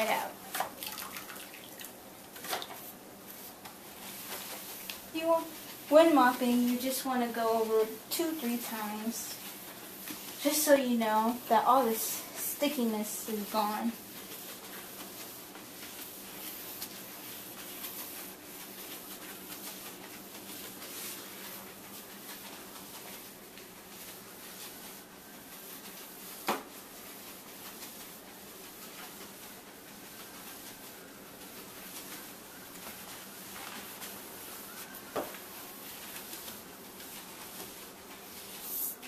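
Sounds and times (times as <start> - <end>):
mop swishing on wet tile floor: 0.0 - 39.0.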